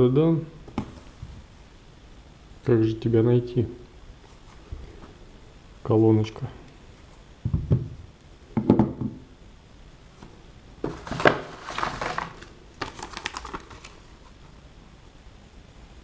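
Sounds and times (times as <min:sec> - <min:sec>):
paper leaflet rustling: 0:10.2 - 0:14.4.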